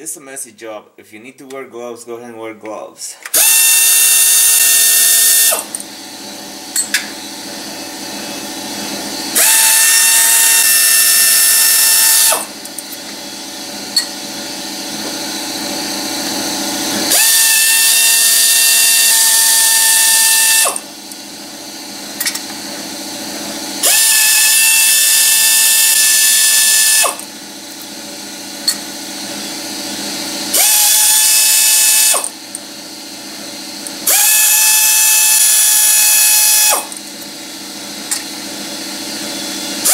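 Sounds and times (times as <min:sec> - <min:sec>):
power ratchet whine: 0:03.3 - 0:39.9.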